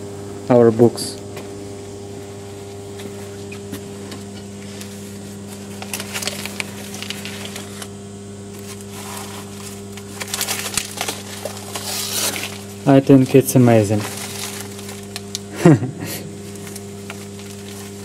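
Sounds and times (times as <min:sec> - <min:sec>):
low electrical hum: 0:00.0 - 0:18.0
paper rustling and crinkling: 0:04.6 - 0:15.5, 0:16.4 - 0:18.0.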